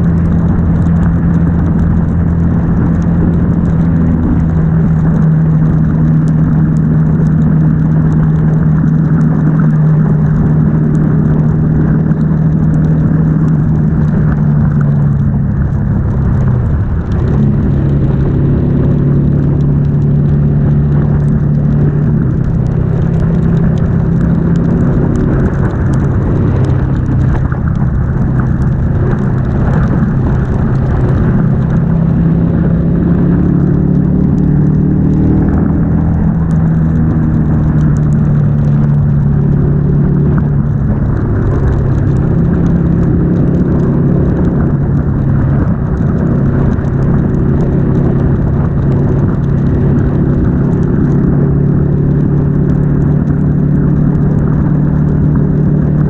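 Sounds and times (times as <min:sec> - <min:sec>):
motorcycle engine cruising: 0:00.0 - 0:56.0
tyres on wet road: 0:00.0 - 0:56.0
wind rushing: 0:15.3 - 0:36.8.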